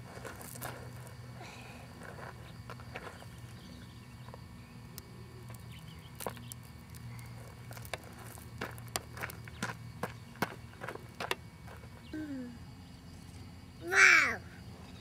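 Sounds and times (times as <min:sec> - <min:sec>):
gravel crunching: 0:00.0 - 0:12.2
steady low hum: 0:00.0 - 0:15.0.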